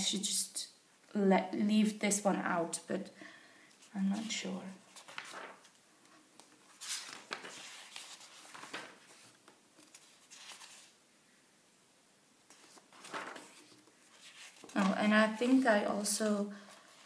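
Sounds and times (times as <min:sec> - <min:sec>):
book pages turning: 0:03.8 - 0:11.0, 0:12.5 - 0:17.0.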